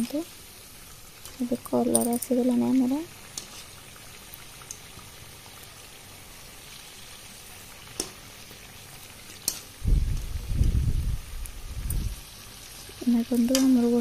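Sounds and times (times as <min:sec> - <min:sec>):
deep-frying sizzle: 0:00.0 - 0:14.0
loud low rumbling: 0:09.8 - 0:12.2.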